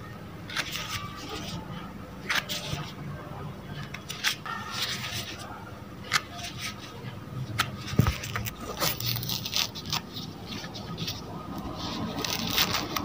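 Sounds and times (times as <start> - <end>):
orange peel tearing: 7.6 - 13.0.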